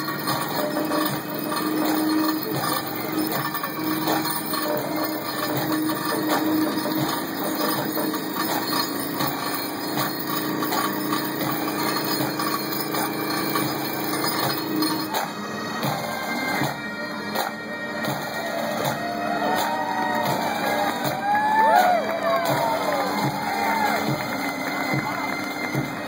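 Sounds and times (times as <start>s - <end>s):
metallic knocks: 0.0s - 15.3s
excavator auger humming: 0.0s - 19.7s.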